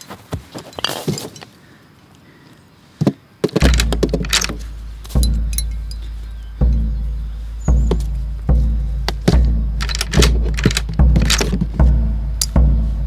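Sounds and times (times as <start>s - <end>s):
footsteps in dry grass: 0.0s - 2.4s, 3.5s - 13.0s
metallic clinks: 3.6s - 7.0s, 7.8s - 11.8s
deep low booms: 3.6s - 13.0s.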